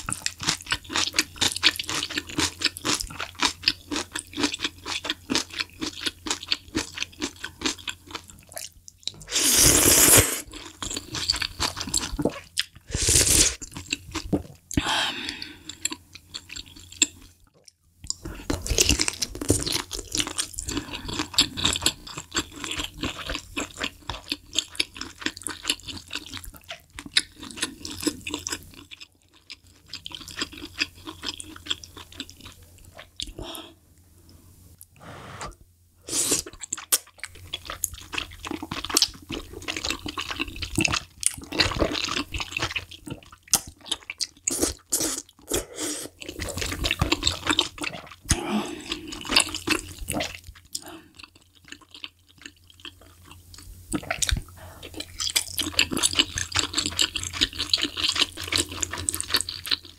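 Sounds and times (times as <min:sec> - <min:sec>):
wet chewing and smacking: 0:00.0 - 0:09.3, 0:10.5 - 0:12.9, 0:13.6 - 0:14.8, 0:15.6 - 0:33.4, 0:36.4 - 0:45.5, 0:46.1 - 0:59.9
slurping noodles: 0:09.2 - 0:10.5, 0:12.9 - 0:13.6.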